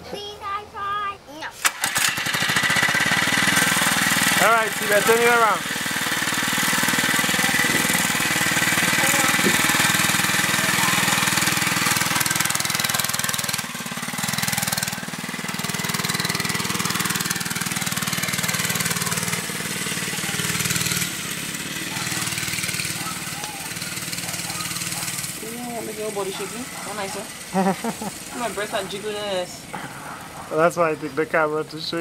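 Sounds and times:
mini bike engine running: 1.6s - 32.0s.

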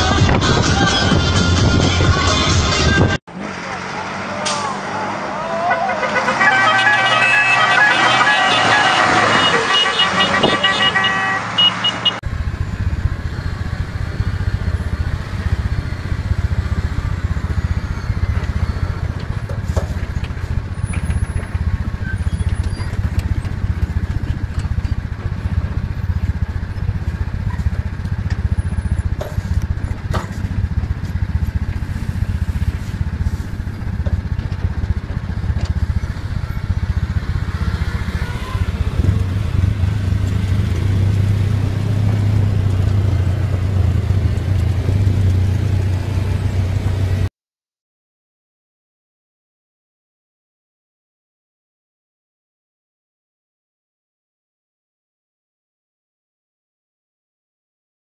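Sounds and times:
diesel truck engine low rumble: 12.1s - 47.3s.

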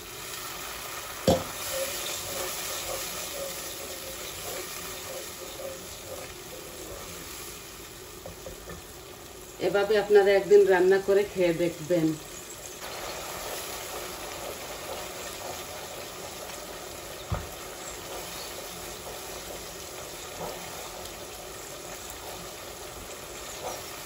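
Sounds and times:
sauce bubbling and sizzling: 0.0s - 24.0s
spatula knocking pot: 1.2s - 7.1s
wooden spatula stirring: 1.3s - 8.9s, 13.5s - 24.0s.

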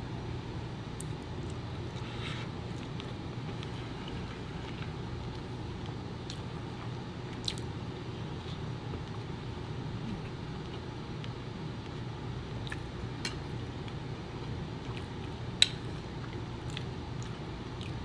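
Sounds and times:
person chewing: 1.0s - 7.7s, 12.6s - 18.0s.

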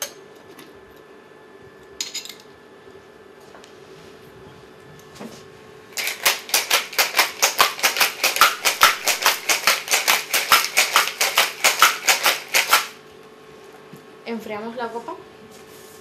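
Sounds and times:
ice rattling in cocktail shaker: 6.0s - 13.0s.

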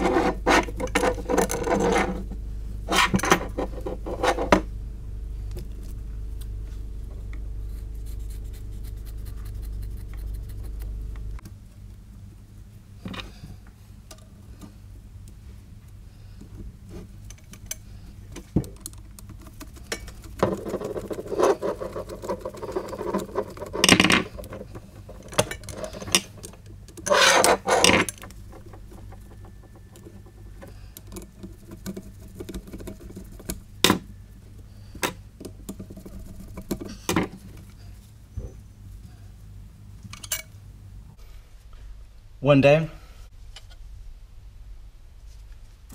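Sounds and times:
heat wrap rubbing and rustling: 5.3s - 12.8s, 15.4s - 38.3s.

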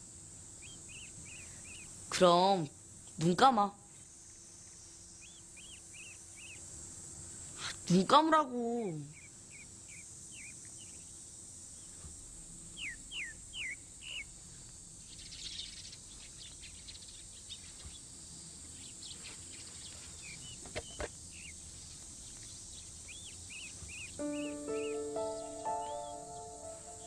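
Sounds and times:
bird chirping: 0.6s - 1.9s, 5.2s - 6.6s, 22.4s - 27.0s
steady high hiss: 21.2s - 27.0s.

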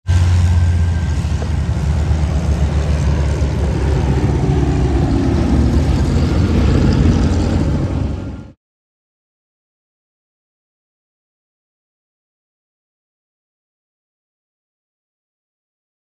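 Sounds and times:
propeller plane droning past: 0.1s - 8.6s.

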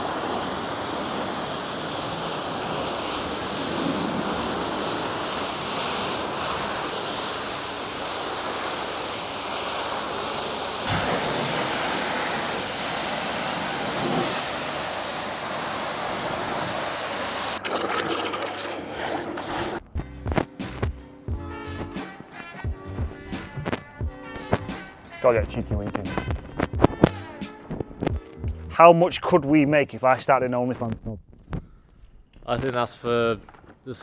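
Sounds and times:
pressure washer spray hissing: 0.0s - 19.8s.

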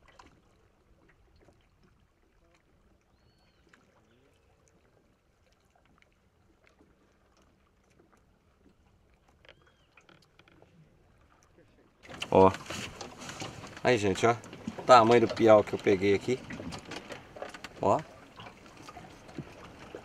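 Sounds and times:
water lapping against boat: 0.0s - 20.0s.

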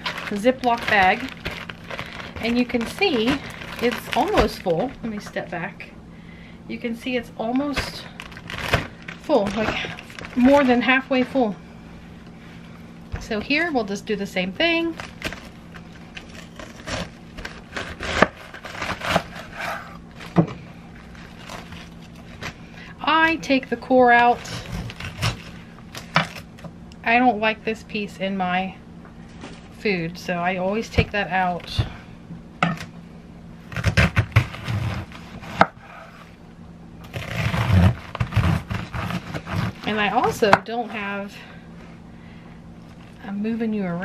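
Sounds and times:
knife slicing cabbage: 16.2s - 20.0s, 33.7s - 36.3s, 37.0s - 40.3s.

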